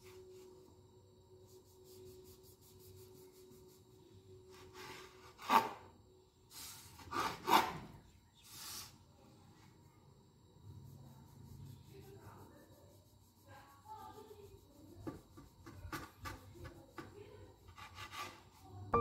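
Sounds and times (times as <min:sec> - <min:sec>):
knife sawing bread: 0:17.7 - 0:18.6.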